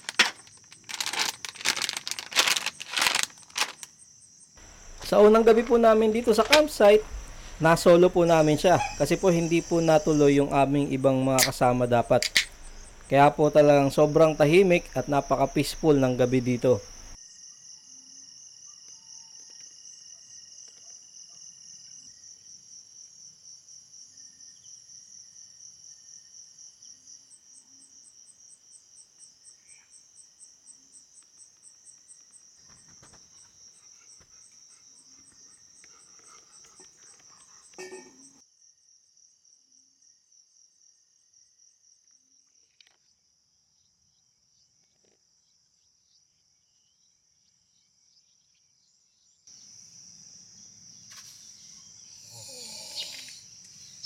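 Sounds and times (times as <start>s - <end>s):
higher insect chirping: 0.0s - 42.4s, 49.5s - 54.0s
crickets chirring: 0.0s - 43.1s, 49.5s - 54.0s.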